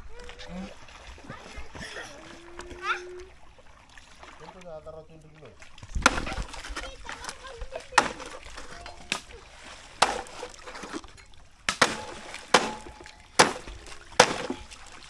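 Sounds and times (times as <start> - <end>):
water splashing: 0.0 - 15.0
machete chopping bamboo: 6.0 - 6.7, 8.0 - 9.4, 10.0 - 11.0, 11.7 - 14.9.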